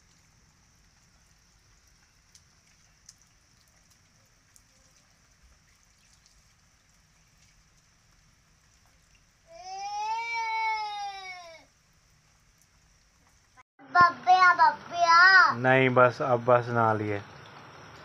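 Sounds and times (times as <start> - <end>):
rain pattering on concrete: 0.0 - 13.6.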